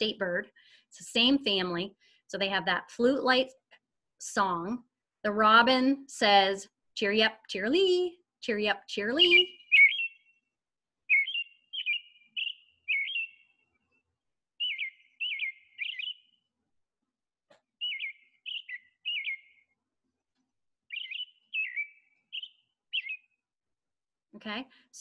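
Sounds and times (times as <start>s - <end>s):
robin singing whistled phrases: 8.9s - 13.7s, 14.6s - 16.5s, 17.8s - 19.8s, 20.9s - 23.4s.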